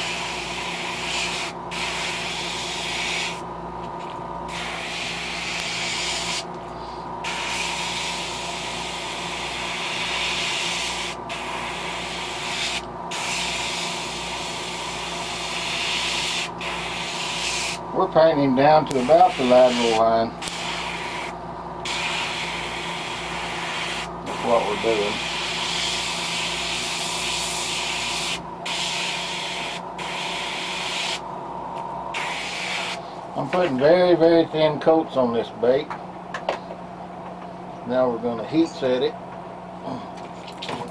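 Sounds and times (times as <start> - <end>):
airbrush spraying hiss: 0.0 - 3.4, 4.5 - 6.5, 7.2 - 17.8, 19.0 - 31.2, 32.1 - 33.0.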